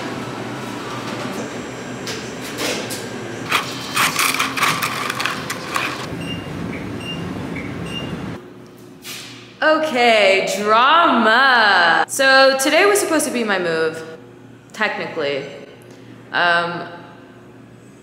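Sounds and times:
straw crackling into plastic cup: 0:03.5 - 0:06.1
straw wrapper tearing: 0:03.5 - 0:06.1.

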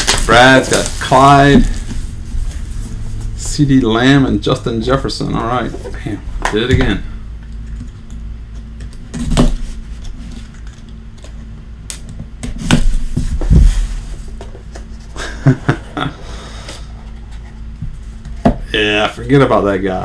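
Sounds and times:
knife slicing shrink wrap: 0:00.0 - 0:01.8.

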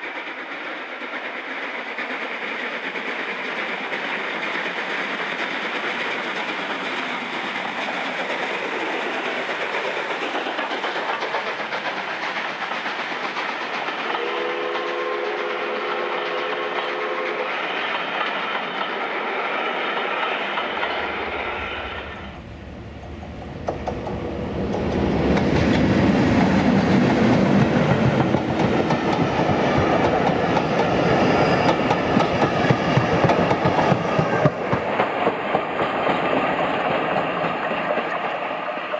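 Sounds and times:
diesel train passing: 0:00.0 - 0:38.9
train wheels rumbling: 0:00.0 - 0:38.9
wheels clacking over rail joints: 0:01.1 - 0:21.3
train whistle: 0:14.0 - 0:20.1.

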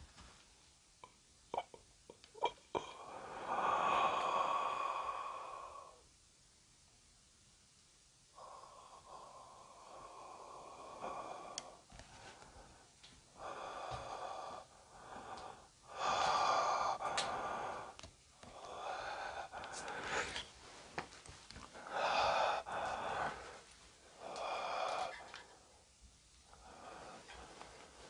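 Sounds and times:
person breathing close to microphone: 0:02.7 - 0:06.0, 0:08.3 - 0:28.0
faint clicks: 0:11.5 - 0:13.2.

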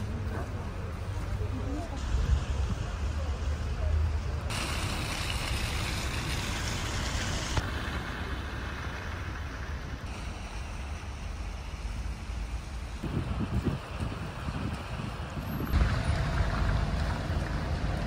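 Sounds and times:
traffic noise: 0:00.0 - 0:18.0.

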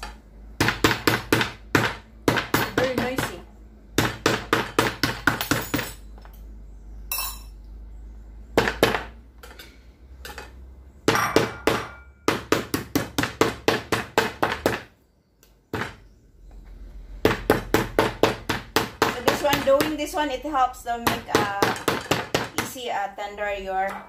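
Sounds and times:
meat mallet pounding beef: 0:00.0 - 0:05.7, 0:11.0 - 0:14.9, 0:17.2 - 0:20.2, 0:21.0 - 0:22.8.

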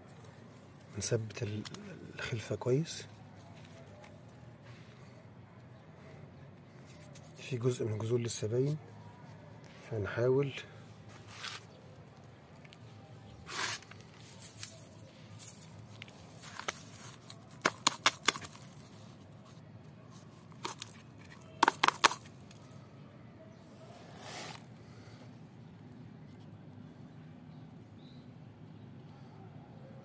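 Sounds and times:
soil scraping and rustling: 0:11.0 - 0:11.8, 0:13.4 - 0:22.3, 0:23.9 - 0:24.7.

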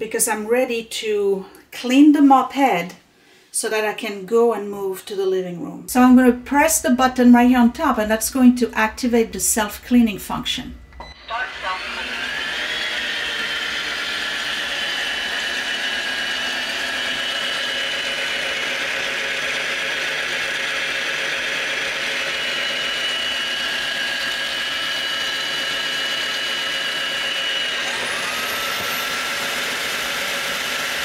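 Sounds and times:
vacuum mop motor whine: 0:07.8 - 0:31.0.

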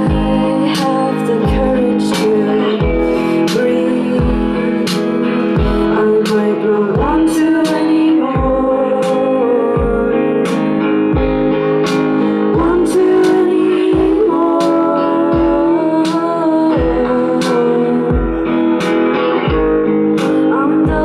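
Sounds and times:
electric guitar: 0:00.0 - 0:21.0
woman singing: 0:00.0 - 0:21.0
kick drum beat: 0:00.1 - 0:00.4, 0:01.4 - 0:01.9, 0:04.2 - 0:04.6, 0:05.6 - 0:06.0, 0:07.0 - 0:07.4, 0:08.4 - 0:08.8, 0:09.8 - 0:10.2, 0:11.2 - 0:11.5, 0:12.6 - 0:12.9, 0:14.0 - 0:14.3, 0:15.3 - 0:15.7, 0:16.8 - 0:17.2, 0:18.1 - 0:18.6, 0:19.5 - 0:19.9.

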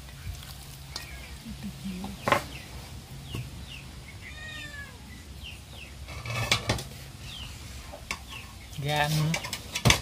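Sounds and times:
cat meowing: 0:04.2 - 0:05.1.

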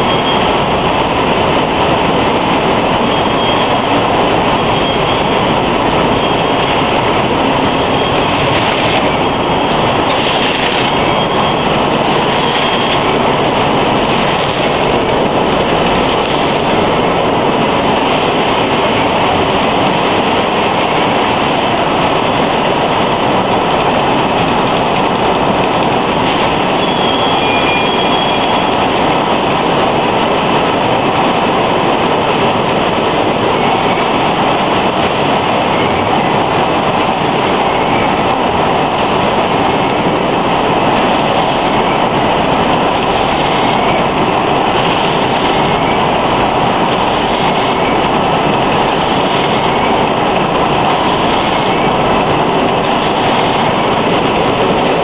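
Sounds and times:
bottling machinery clattering: 0:00.0 - 0:28.4
faint high squeal: 0:26.8 - 0:28.7.

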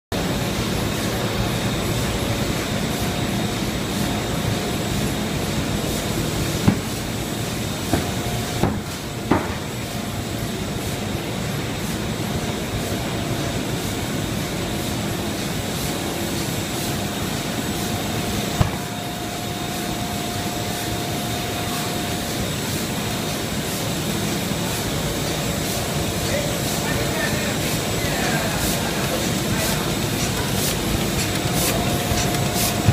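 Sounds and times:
laminating machine running: 0:00.2 - 0:32.9.

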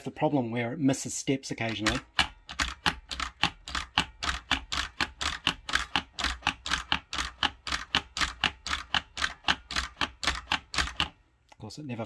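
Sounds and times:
rotor mechanism clicking: 0:01.6 - 0:11.2.

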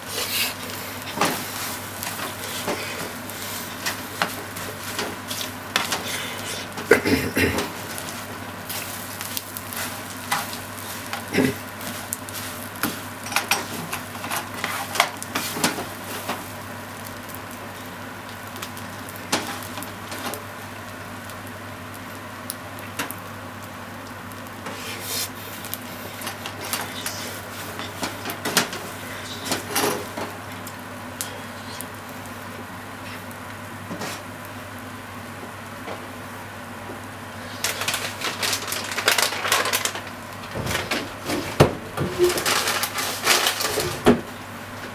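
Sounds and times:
food sizzling: 0:00.0 - 0:44.9
spatula scraping a frying pan: 0:09.6 - 0:16.3.

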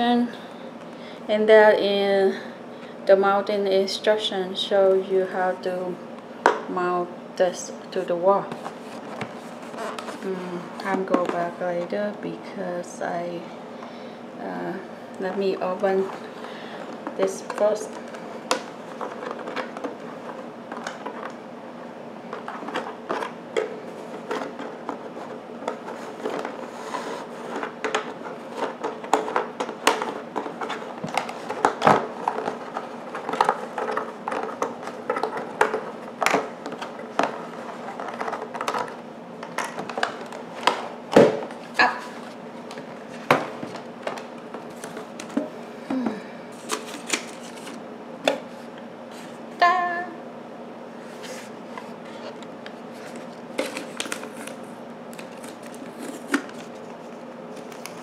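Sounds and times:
box handling clicks and scrapes: 0:08.5 - 0:11.5, 0:22.3 - 0:45.5, 0:46.5 - 0:49.4, 0:51.0 - 0:58.0.

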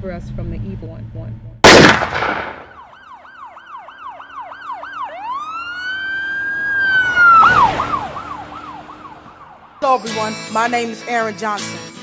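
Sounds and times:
police siren: 0:02.6 - 0:09.8.

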